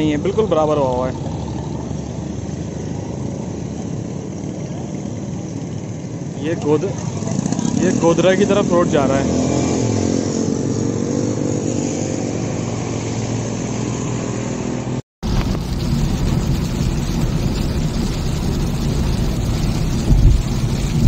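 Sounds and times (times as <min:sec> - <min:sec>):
motorcycle engine running: 0:00.0 - 0:10.1, 0:15.2 - 0:21.0
car driving in heavy rain: 0:00.0 - 0:21.0.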